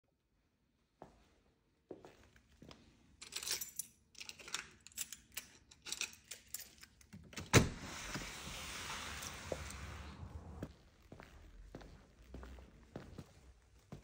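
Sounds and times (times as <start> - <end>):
footsteps: 8.7 - 14.0.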